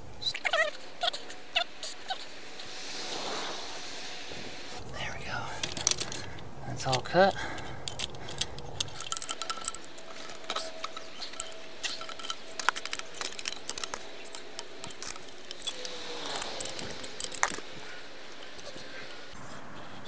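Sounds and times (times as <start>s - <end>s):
wrenches clinking on metal: 5.6s - 17.8s.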